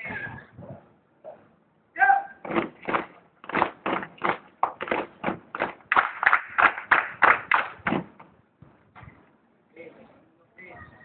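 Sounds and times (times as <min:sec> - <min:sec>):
feet stamping in unison: 0:02.4 - 0:05.9.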